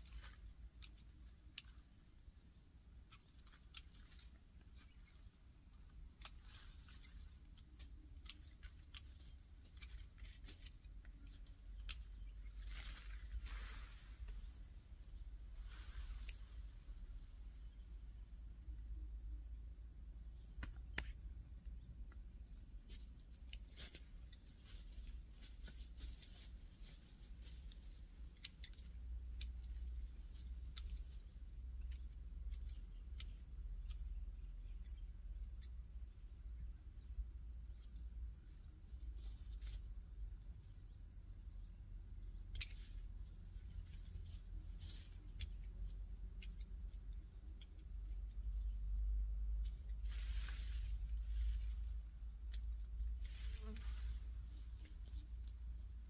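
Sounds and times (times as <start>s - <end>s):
pruning clicks in branches: 0.2s - 1.9s, 5.8s - 13.2s, 16.1s - 17.4s, 23.3s - 24.5s, 27.6s - 34.9s, 42.3s - 43.0s.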